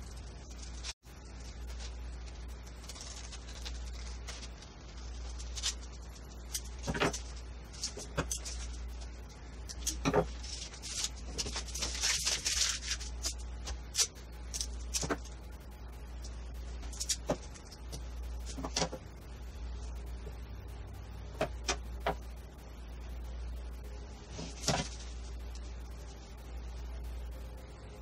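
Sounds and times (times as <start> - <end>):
steady low hum: 0.0 - 28.0
paper rustling: 0.1 - 9.1, 9.7 - 15.4, 24.3 - 25.6.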